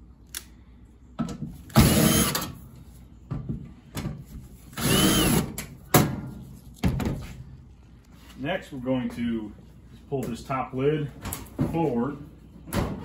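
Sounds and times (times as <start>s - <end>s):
cordless drill whining: 1.7s - 2.5s, 4.7s - 5.5s.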